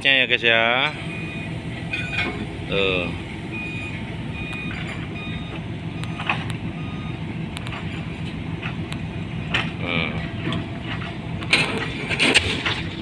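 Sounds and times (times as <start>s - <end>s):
diesel engine running: 0.0s - 13.0s
warning alarm beeps: 0.9s - 8.1s.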